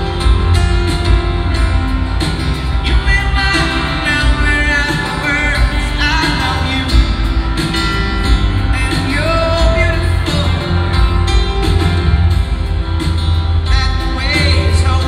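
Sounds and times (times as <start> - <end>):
acoustic guitars: 0.0 - 15.0
drums: 0.0 - 15.0
grand piano: 0.0 - 15.0
lead singer: 0.0 - 15.0
live band playing pop-rock: 0.0 - 15.0.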